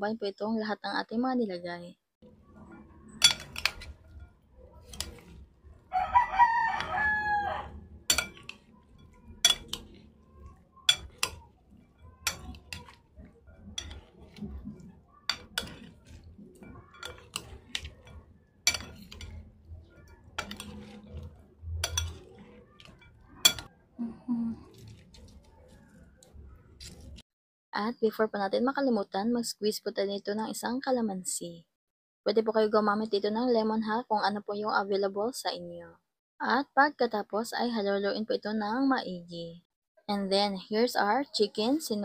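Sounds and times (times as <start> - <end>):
spoon clinking against bowl: 2.7 - 5.4, 8.0 - 23.7
rooster crowing: 5.9 - 7.8.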